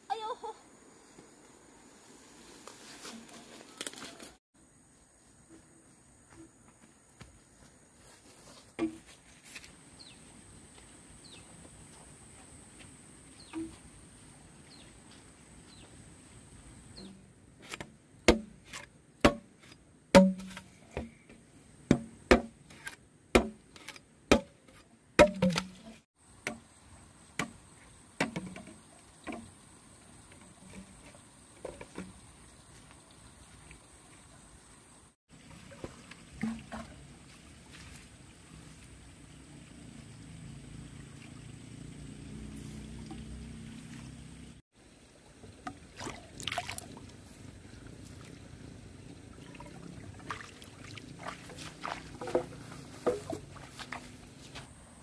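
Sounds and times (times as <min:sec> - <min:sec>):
knife chopping bamboo: 0:17.6 - 0:21.1, 0:21.9 - 0:24.6, 0:25.2 - 0:26.6.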